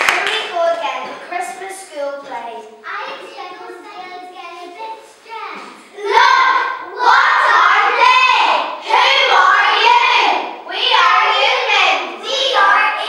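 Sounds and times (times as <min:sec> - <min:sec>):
young children singing: 0:03.2 - 0:13.0.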